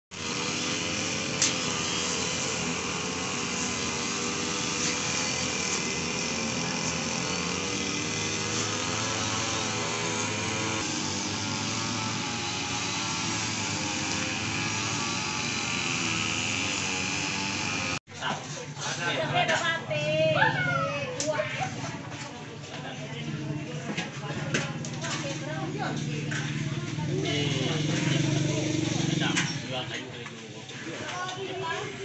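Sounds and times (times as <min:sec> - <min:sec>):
engine running: 0:00.1 - 0:18.0, 0:23.6 - 0:29.7.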